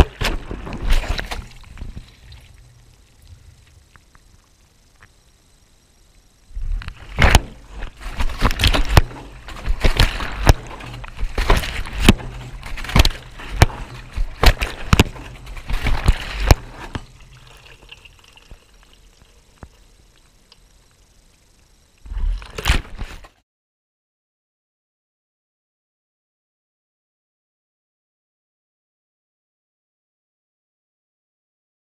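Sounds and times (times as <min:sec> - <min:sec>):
water sloshing in washing machine: 0:00.0 - 0:02.8, 0:07.4 - 0:19.7.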